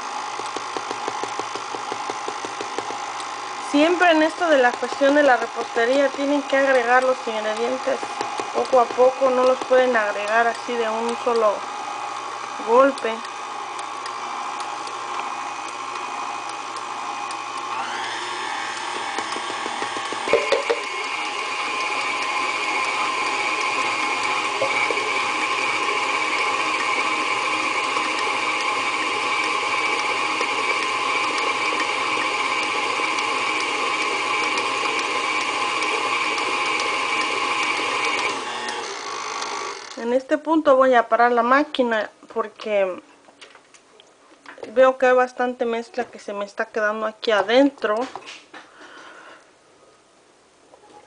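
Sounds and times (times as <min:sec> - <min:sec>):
stand mixer motor whine: 0:00.0 - 0:40.0.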